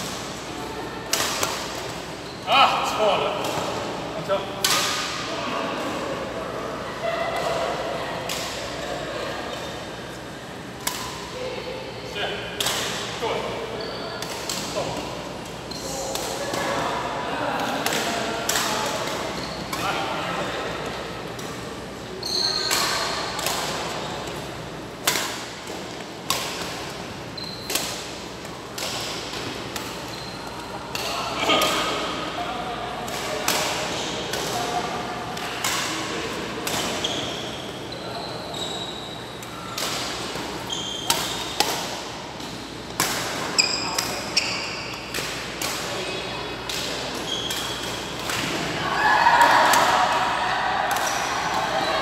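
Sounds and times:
shoes squeaking on court floor: 0:13.7 - 0:16.4, 0:18.7 - 0:24.8, 0:26.8 - 0:32.1, 0:36.8 - 0:41.7, 0:42.6 - 0:45.1, 0:46.0 - 0:48.3
shoes squeaking on floor: 0:13.8 - 0:14.2, 0:19.2 - 0:19.7, 0:22.2 - 0:23.3, 0:27.3 - 0:27.8, 0:30.0 - 0:30.8, 0:37.0 - 0:39.4, 0:40.6 - 0:41.6, 0:43.5 - 0:45.1, 0:47.2 - 0:48.1
racquet hitting shuttlecock: 0:25.0 - 0:27.0, 0:39.8 - 0:44.3, 0:49.4 - 0:50.2, 0:50.9 - 0:51.6.

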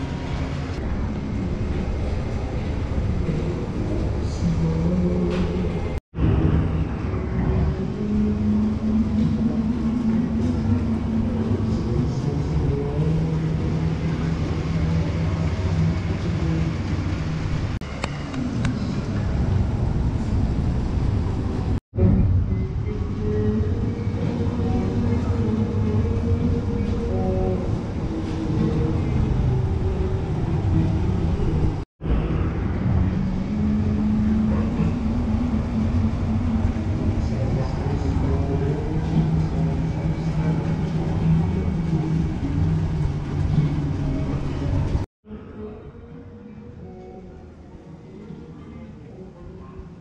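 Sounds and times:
low hum shifting in pitch: 0:00.0 - 0:50.0
low mechanical rumble: 0:00.0 - 0:50.0
street noise: 0:00.0 - 0:50.0.

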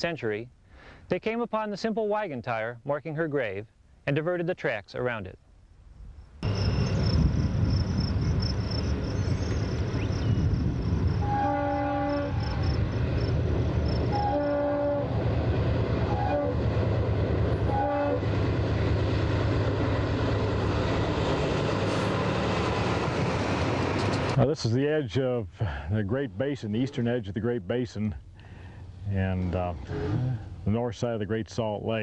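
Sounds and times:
locomotive engine and wheel rumble: 0:06.4 - 0:24.5
train chord horn blasts: 0:11.1 - 0:12.8, 0:14.0 - 0:15.2, 0:16.0 - 0:16.7, 0:17.5 - 0:18.3.

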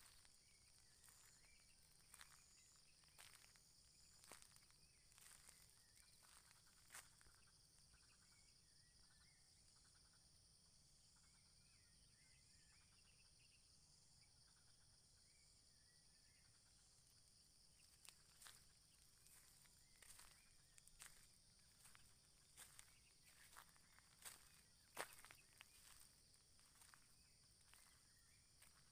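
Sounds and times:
high insect drone: 0:00.0 - 0:08.5, 0:17.8 - 0:28.9
faint bird chirps: 0:00.0 - 0:10.2, 0:10.9 - 0:28.9.

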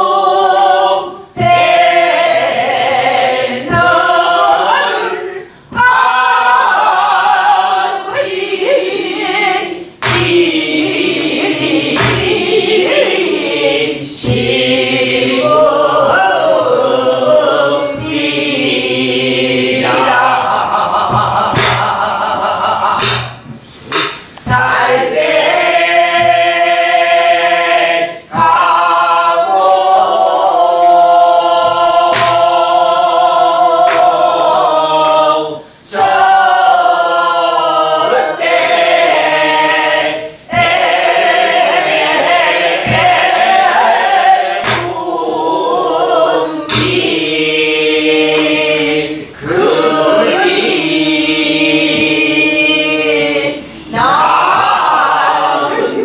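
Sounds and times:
group singing folk song in unison: 0:00.0 - 0:56.0
barrel drum strokes: 0:01.3 - 0:05.1, 0:05.7 - 0:30.2, 0:38.4 - 0:48.8, 0:49.4 - 0:53.1.

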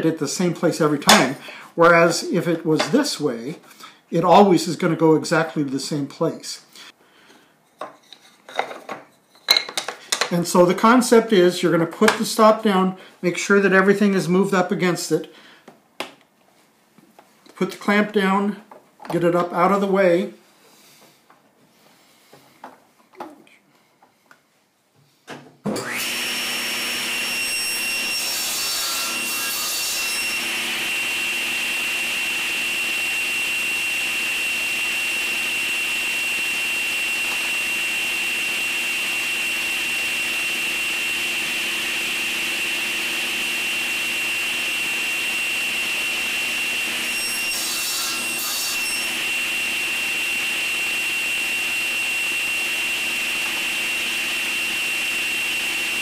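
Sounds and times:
table saw whining: 0:25.7 - 0:56.0.

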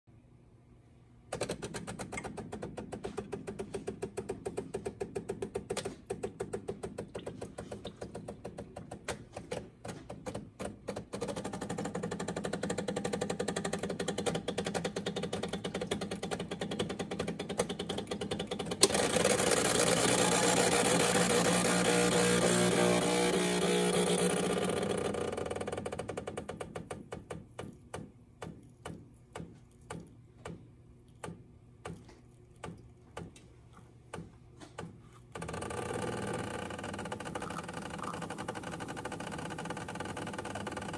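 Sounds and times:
espresso machine pump pulsing: 0:01.4 - 0:27.6, 0:35.3 - 0:40.9.

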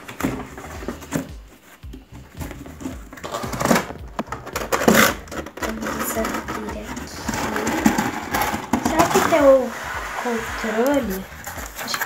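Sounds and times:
cardboard flaps scraping: 0:00.0 - 0:12.0.

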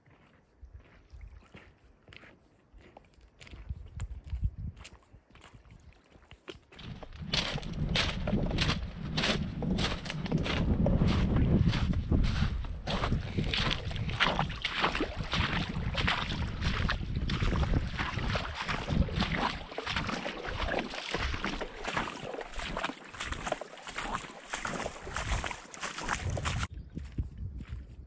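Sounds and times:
wind buffeting microphone: 0:03.5 - 0:05.8, 0:06.8 - 0:28.0
waves lapping on pebbles: 0:12.9 - 0:26.7.

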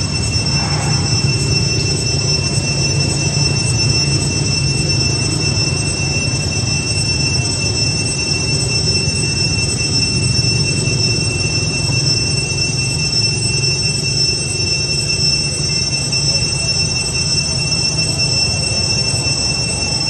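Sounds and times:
low rumble: 0:00.0 - 0:03.6
cicadas droning: 0:00.0 - 0:20.0.

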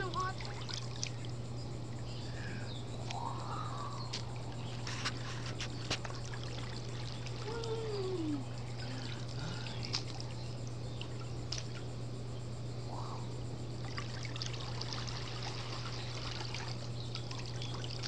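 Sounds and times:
water trickling and splashing: 0:00.0 - 0:01.4, 0:05.7 - 0:11.9, 0:13.8 - 0:18.0
steady low hum: 0:00.0 - 0:18.0.

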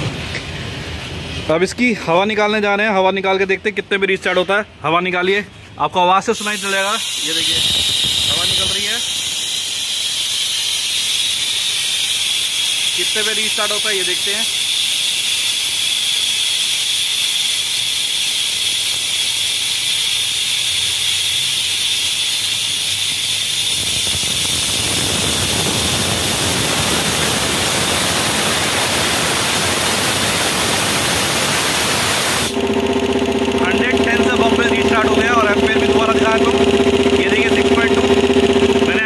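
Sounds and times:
compressed air hissing from tank: 0:06.2 - 0:32.6.

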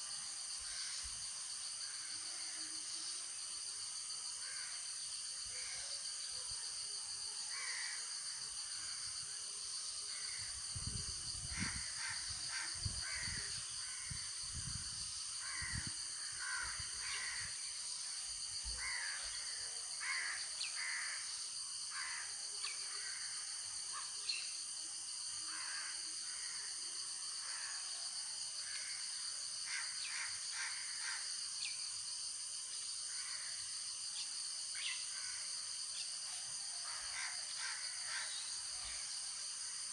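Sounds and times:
crows cawing: 0:07.5 - 0:08.0, 0:11.5 - 0:14.2, 0:15.4 - 0:17.5, 0:18.8 - 0:19.2, 0:20.0 - 0:21.2, 0:21.9 - 0:22.4, 0:25.5 - 0:26.6, 0:29.7 - 0:31.2, 0:36.9 - 0:38.4.

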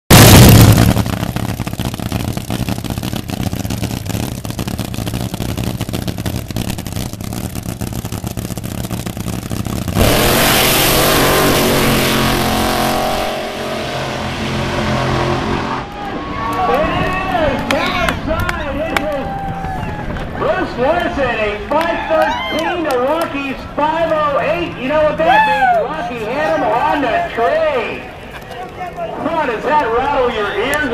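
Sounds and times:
cars launching at full throttle: 0:00.1 - 0:21.9
drag racing cars idling: 0:00.1 - 0:25.3.

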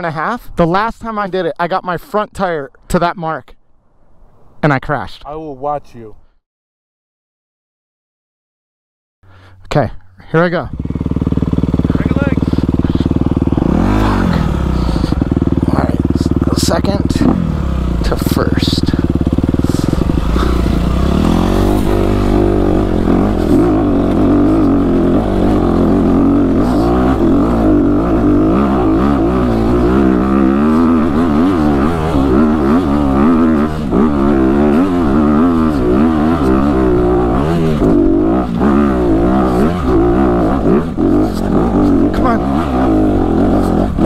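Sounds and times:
dirt bike engine revving: 0:10.6 - 0:44.0.

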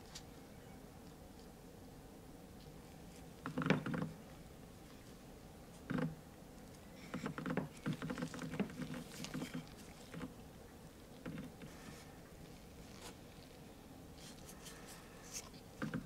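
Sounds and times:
gloved hands rubbing leather: 0:07.1 - 0:10.4, 0:11.4 - 0:13.6.

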